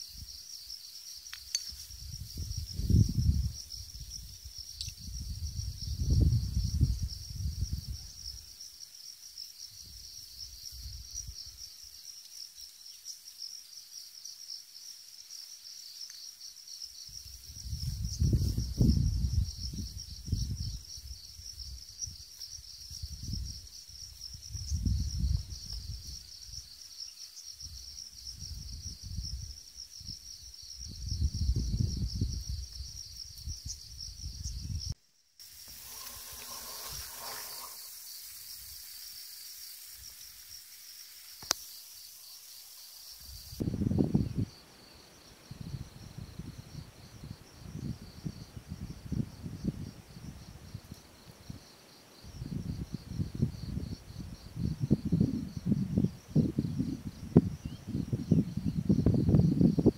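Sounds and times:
insects chirping: 0.0 - 59.9
steady hiss: 32.7 - 49.3.

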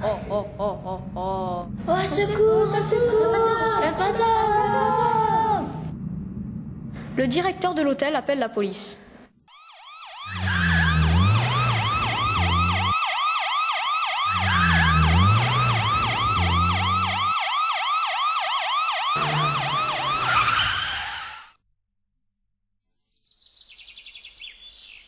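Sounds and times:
police siren wailing: 9.5 - 21.5.

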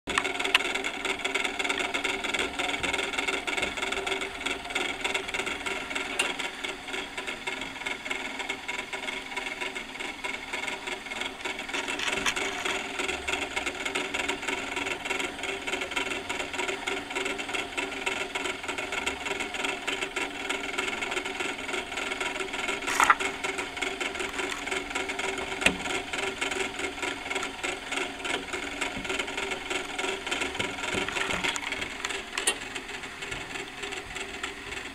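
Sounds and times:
clockwork gears whirring and rattling: 0.1 - 34.9.

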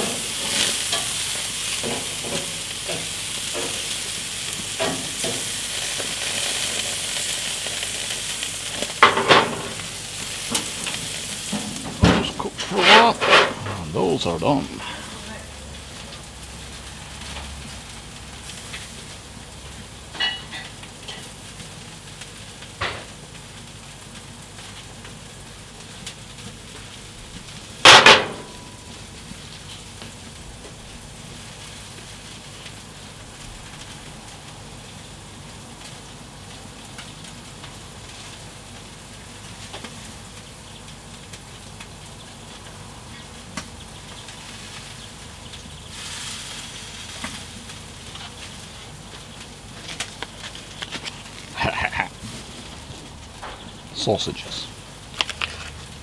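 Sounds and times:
food sizzling on a grill: 0.0 - 56.0
plate clattering on a shelf: 11.6 - 13.8.

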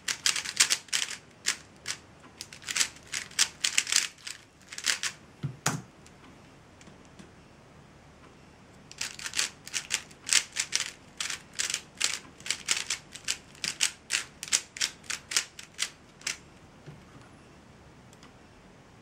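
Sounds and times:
puzzle cube plastic clacking: 0.1 - 5.2, 8.9 - 16.4.

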